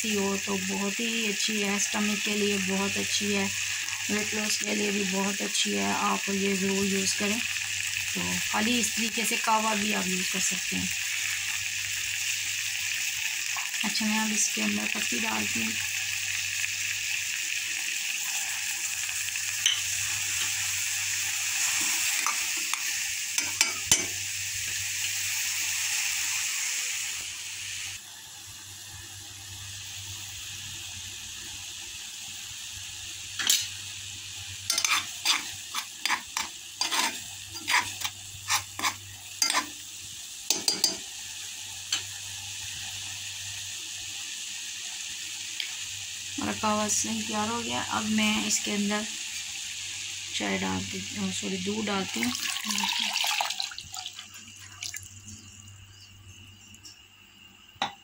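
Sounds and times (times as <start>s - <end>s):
water boiling in metal pot: 0.0s - 58.0s
metal clinks against pot: 40.5s - 41.0s.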